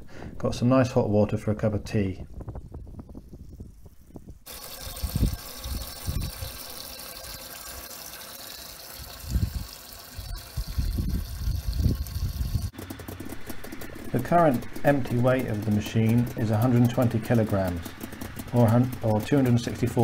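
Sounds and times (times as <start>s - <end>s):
wind buffeting microphone: 1.6s - 6.8s, 9.0s - 12.8s
water gushing into container: 4.5s - 12.8s.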